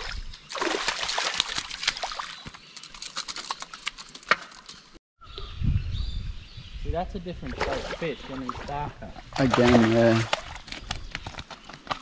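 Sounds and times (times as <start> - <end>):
water splashing and trickling: 0.0 - 4.2, 7.3 - 11.0.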